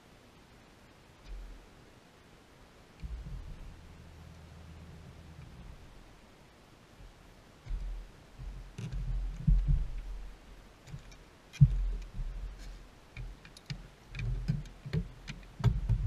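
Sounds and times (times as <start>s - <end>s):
light clicks and rattles: 7.6s - 16.0s.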